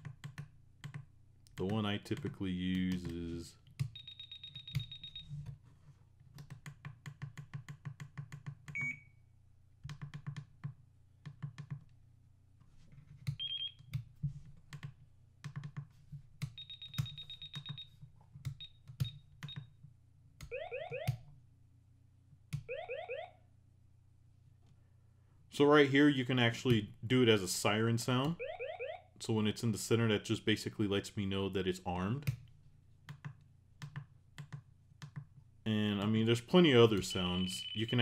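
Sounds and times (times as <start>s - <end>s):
electronic chirp: 37.1s - 38.0s.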